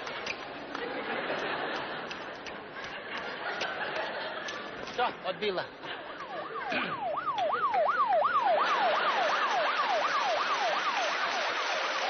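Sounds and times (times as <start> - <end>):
siren yelping wail: 6.1 - 12.0.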